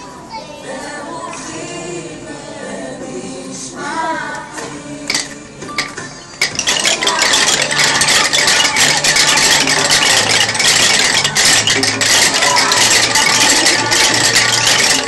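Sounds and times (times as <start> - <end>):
children beating wooden rhythm sticks: 5.0 - 15.0.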